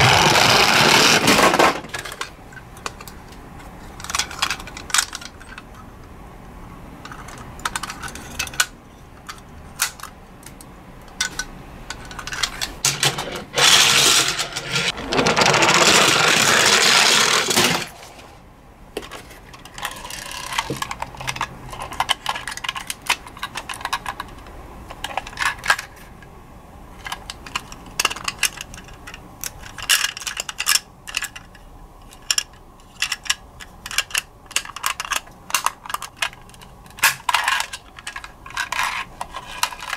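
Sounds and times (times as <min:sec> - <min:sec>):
loud scraping rush: 0:00.0 - 0:01.9, 0:13.4 - 0:18.4
plastic toy parts clicking: 0:04.0 - 0:05.7, 0:07.0 - 0:17.9, 0:19.5 - 0:26.0, 0:27.0 - 0:39.9.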